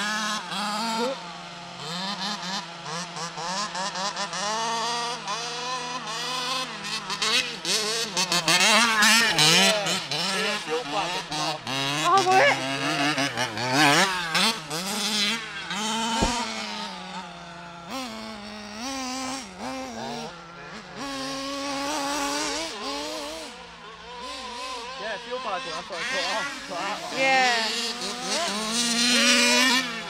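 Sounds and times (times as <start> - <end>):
small two-stroke engine revving: 0.0 - 30.0
sharp knock: 16.2 - 16.4.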